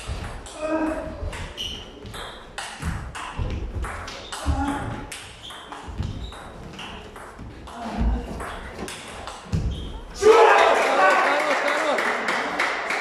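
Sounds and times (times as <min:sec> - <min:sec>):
footsteps on wooden floor: 0:00.0 - 0:05.1, 0:05.8 - 0:10.0.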